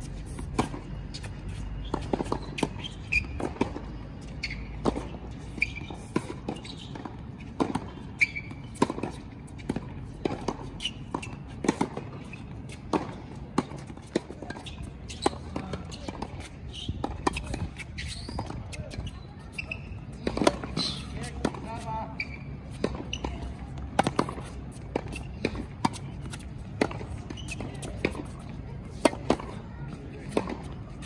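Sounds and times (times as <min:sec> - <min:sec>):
rackets striking tennis ball: 0:20.1 - 0:29.6.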